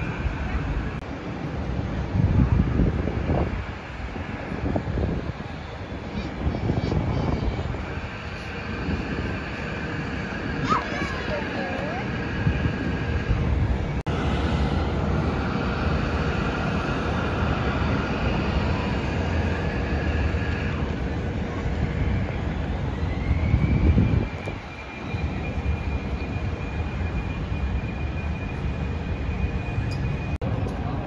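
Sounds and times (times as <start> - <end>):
jet engine whine: 0.0 - 31.0
jet engines rumbling: 0.0 - 31.0.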